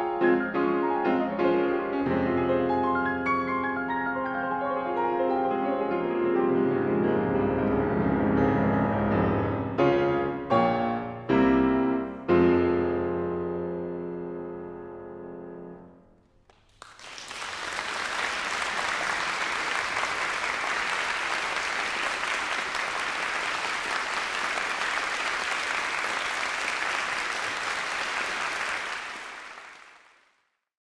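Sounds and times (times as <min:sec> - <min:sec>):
audience applause: 0:16.5 - 0:30.4.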